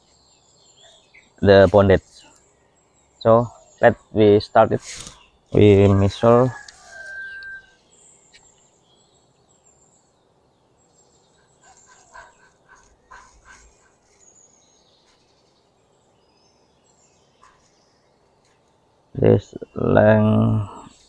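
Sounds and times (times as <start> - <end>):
outdoor background noise: 0.0 - 21.0
faint animal calls: 3.2 - 7.8, 11.3 - 14.3.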